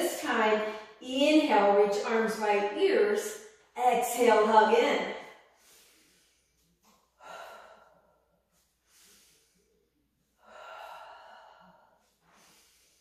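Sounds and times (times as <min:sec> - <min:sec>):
woman breathing: 0:05.1 - 0:13.0.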